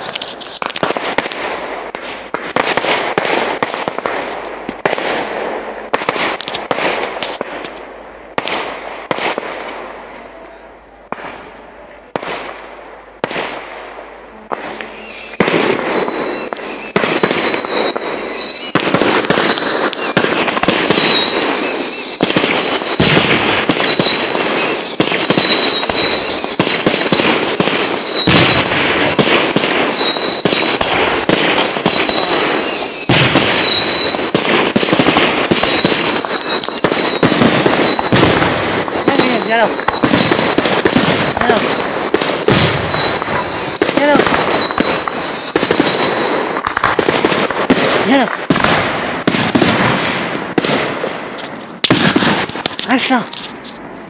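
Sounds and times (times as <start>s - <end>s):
fireworks bangs and crackling: 0.0s - 54.0s
high wavering whistle: 14.8s - 46.6s.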